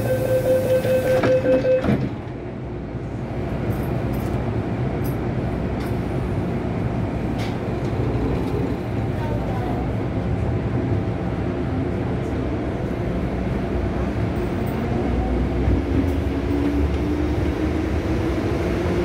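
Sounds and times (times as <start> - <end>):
door-closing warning tone: 0.0 - 2.2
train rumble: 0.0 - 19.0.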